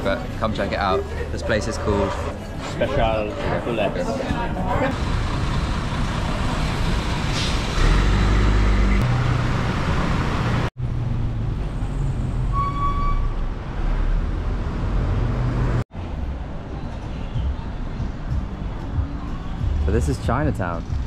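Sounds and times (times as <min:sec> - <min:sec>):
bus engine running: 0:00.0 - 0:12.5.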